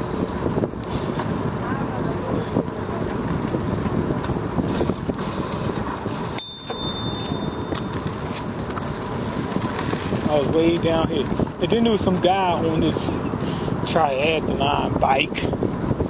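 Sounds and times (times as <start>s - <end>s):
wind and road noise: 0.0s - 16.0s
bicycle bell ring: 6.4s - 8.2s.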